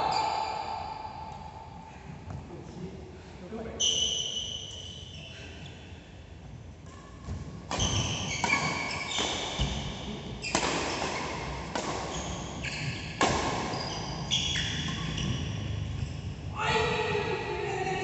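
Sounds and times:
court shoes squeaking: 3.8s - 5.9s, 6.8s - 16.5s
racket hitting shuttlecock: 7.6s - 15.7s.

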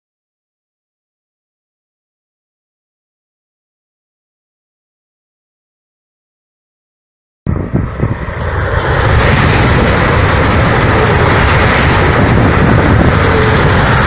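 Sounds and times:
high-speed train passing: 7.5s - 14.0s.

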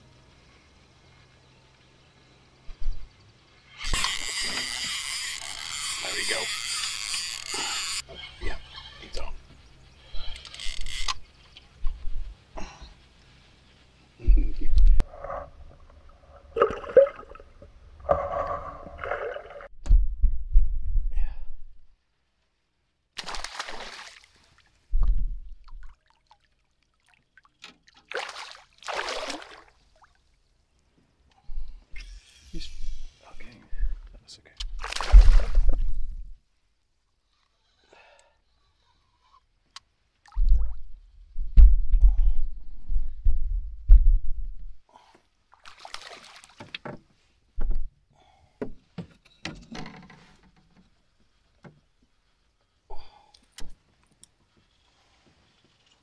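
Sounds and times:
water sloshing: 15.1s - 19.7s, 23.2s - 24.7s, 25.6s - 30.4s, 34.8s - 36.1s, 45.6s - 46.8s
low thump: 19.8s - 21.0s
fish splashing in water: 23.2s - 24.5s, 28.1s - 30.2s, 34.8s - 35.8s, 45.6s - 46.6s
fish thrashing in water: 34.8s - 35.9s.

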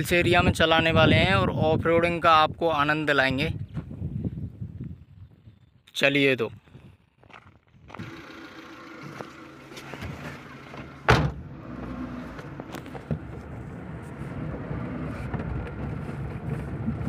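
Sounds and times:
van engine and road rumble: 7.0s - 17.0s
car door slamming: 9.9s - 13.4s.

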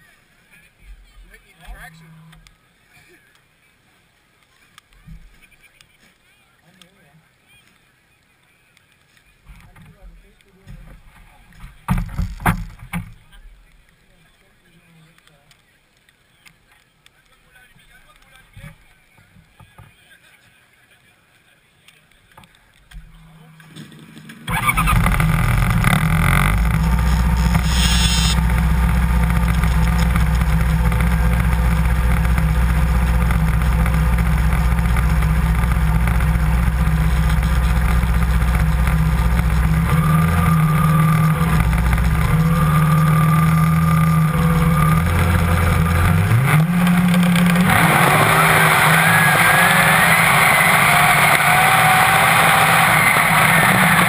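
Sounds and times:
snowmobile engine: 24.5s - 54.0s
track and snow rushing: 24.5s - 54.0s.

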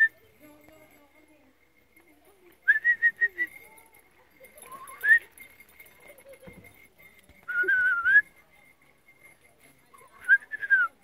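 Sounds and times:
person whistling: 2.7s - 3.5s, 7.5s - 8.3s, 10.3s - 10.9s.

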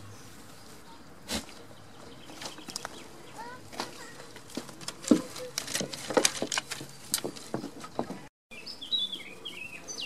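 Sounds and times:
sticks snapping under hooves: 3.8s - 8.0s.

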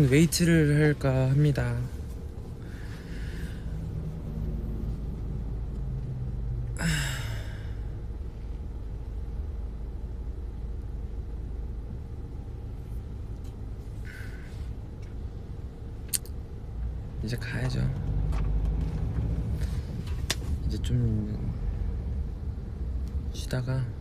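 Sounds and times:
car cabin rumble: 0.0s - 24.0s
person sighing: 6.8s - 7.9s, 14.0s - 14.7s.

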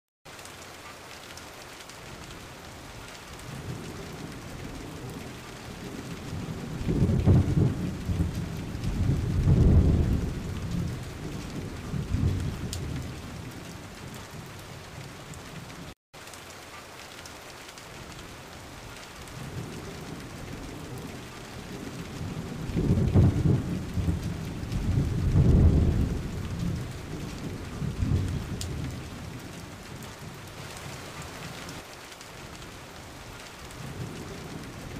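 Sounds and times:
steady rain: 0.3s - 34.9s
rolling thunder: 3.5s - 15.7s, 19.4s - 31.0s.

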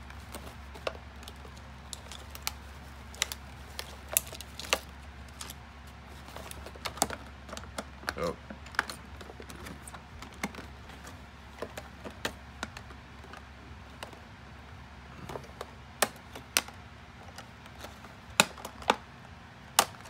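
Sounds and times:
plastic bag crinkling: 0.0s - 13.3s
plastic snapping: 0.2s - 5.6s, 15.2s - 19.1s, 19.7s - 20.0s.

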